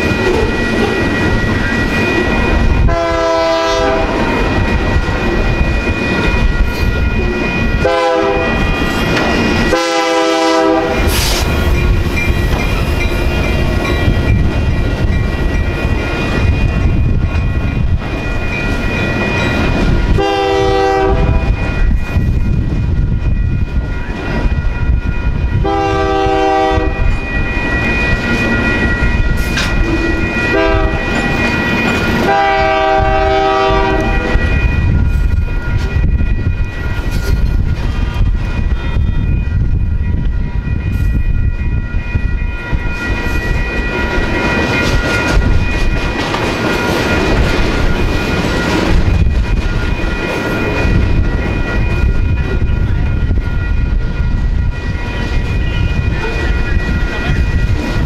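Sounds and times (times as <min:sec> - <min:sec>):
crossing bells ringing: 0:00.0 - 0:58.0
locomotive horn blasts: 0:02.9 - 0:04.3, 0:07.8 - 0:08.6, 0:09.7 - 0:11.1, 0:20.2 - 0:21.6, 0:25.6 - 0:27.1, 0:30.5 - 0:31.1, 0:32.2 - 0:34.4
freight cars rumbling and clacking: 0:08.4 - 0:09.8, 0:10.8 - 0:20.2, 0:27.1 - 0:32.3, 0:34.0 - 0:58.0.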